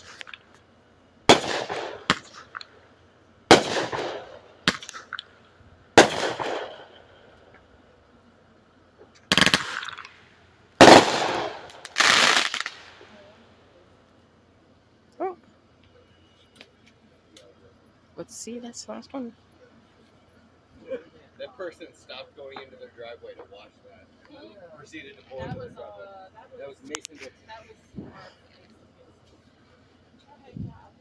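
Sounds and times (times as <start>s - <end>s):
fireworks bangs: 0.0s - 0.4s, 1.3s - 2.8s, 3.5s - 5.2s, 5.9s - 7.3s, 9.2s - 13.2s
rough firework bursts: 0.0s - 0.6s, 1.2s - 7.5s, 9.1s - 13.4s.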